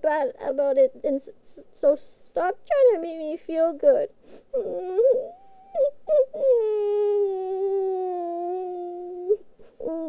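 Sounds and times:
woman whimpering: 0:04.5 - 0:10.0.

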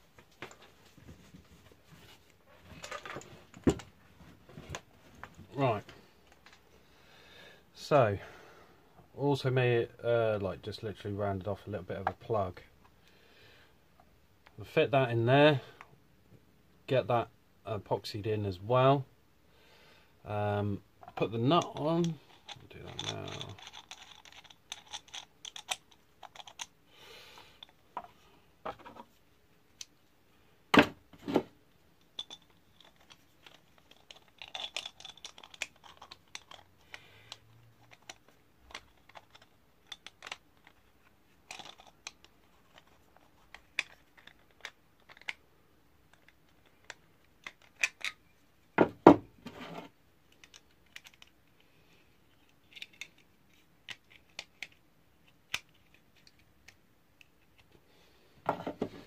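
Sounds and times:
nut clicking and scraping on bolt: 0:21.0 - 0:26.8, 0:32.0 - 0:45.4.

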